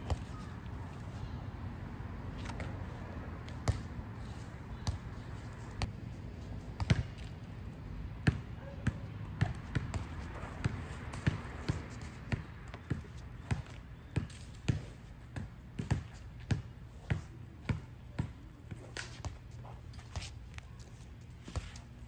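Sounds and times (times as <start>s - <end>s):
basketball bouncing on asphalt: 3.4s - 6.0s, 6.7s - 7.4s, 8.1s - 19.6s.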